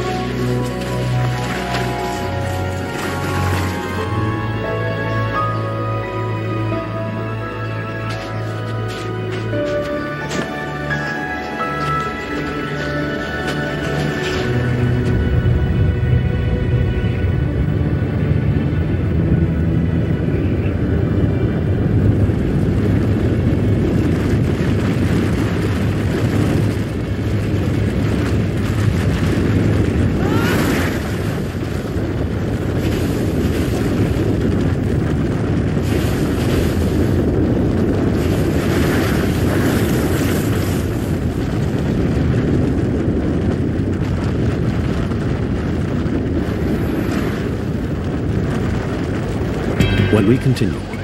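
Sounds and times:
avalanche rumble: 0:00.0 - 0:51.0
rushing snow hiss: 0:35.7 - 0:41.4.

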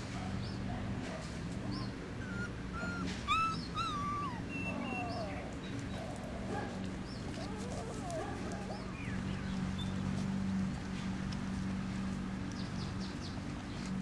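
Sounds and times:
puppies whimpering: 0:01.7 - 0:06.4, 0:07.1 - 0:09.3
puppy squeaks: 0:02.2 - 0:05.4.

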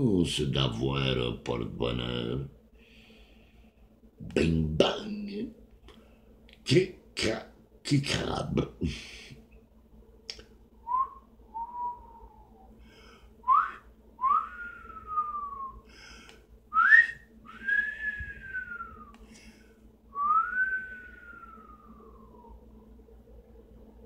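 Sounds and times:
man whistling a slow tune: 0:10.8 - 0:12.7, 0:13.4 - 0:15.8, 0:16.7 - 0:19.2, 0:20.1 - 0:22.6.

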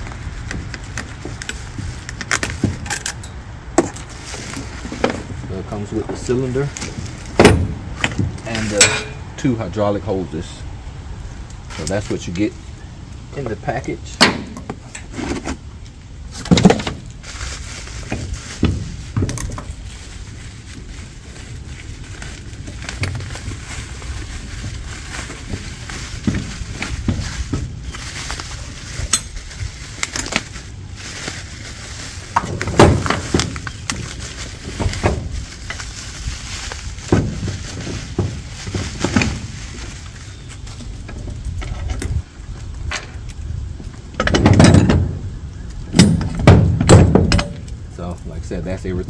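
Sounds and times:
plastic wrapping rustling: 0:00.0 - 0:03.0, 0:03.9 - 0:07.4, 0:14.8 - 0:41.6
steel parts clinking on wood: 0:08.7 - 0:09.3.

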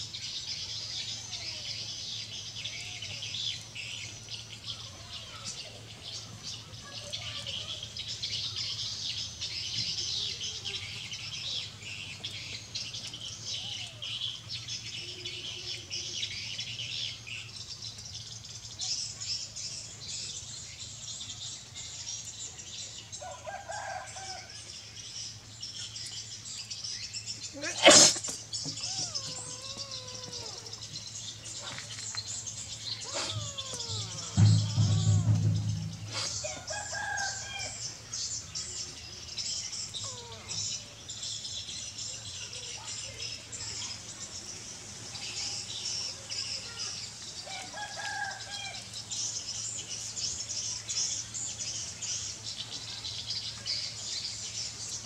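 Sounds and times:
small birds chirping: 0:00.0 - 0:55.0
kitten meowing: 0:28.8 - 0:30.8, 0:33.0 - 0:35.0.

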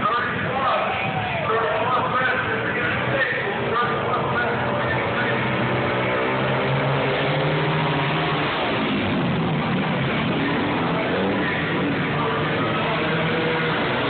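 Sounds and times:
racing motorcycles passing: 0:00.0 - 0:14.0.

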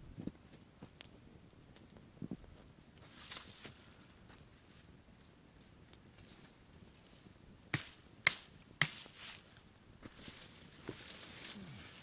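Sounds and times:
dry branches snapping: 0:07.7 - 0:09.4.

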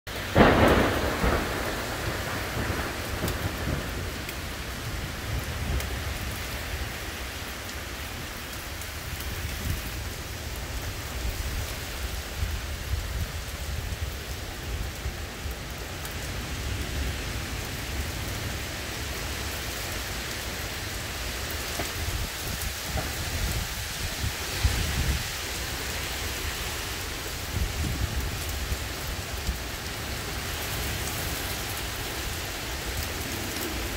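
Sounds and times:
thunder rumbling: 0:00.1 - 0:07.2, 0:20.7 - 0:33.9
heavy rain pouring: 0:00.1 - 0:33.9.

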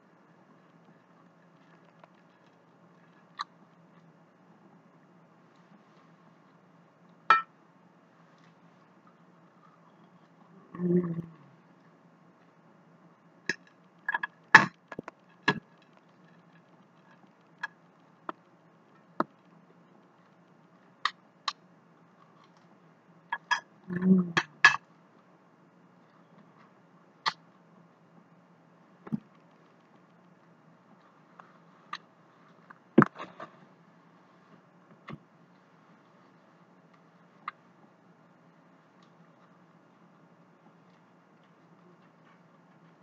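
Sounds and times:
person humming: 0:10.6 - 0:11.5, 0:23.9 - 0:24.5.

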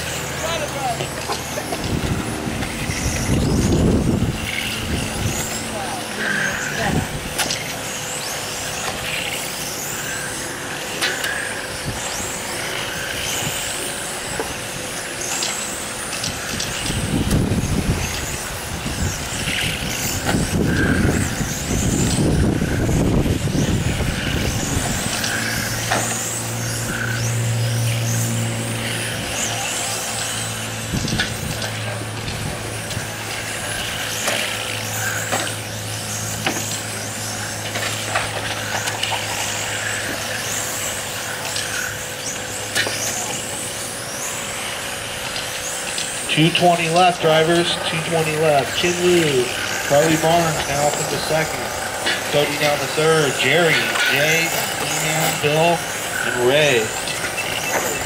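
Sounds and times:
low rumble: 0:00.0 - 0:07.4
rc cars whining past: 0:00.0 - 0:58.0
steady low hum: 0:00.0 - 0:58.0.

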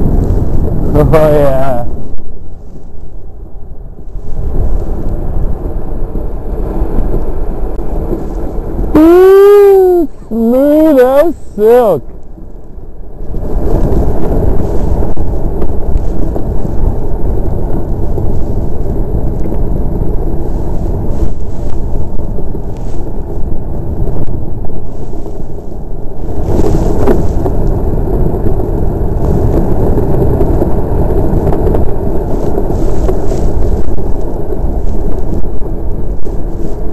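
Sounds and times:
wind on microphone: 0:00.0 - 0:36.9
steel runners rumbling over ice: 0:10.9 - 0:36.9.

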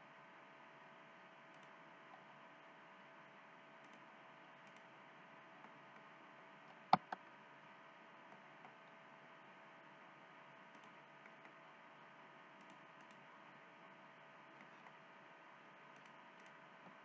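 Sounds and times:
sharp computer clicks: 0:07.0 - 0:07.2.

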